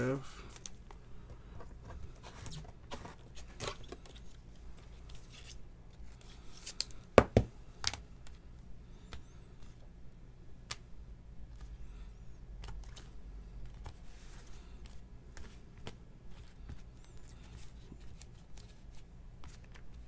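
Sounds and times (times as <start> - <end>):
cards rustling and tapping: 0.4 - 8.4, 11.4 - 11.8, 12.5 - 20.0.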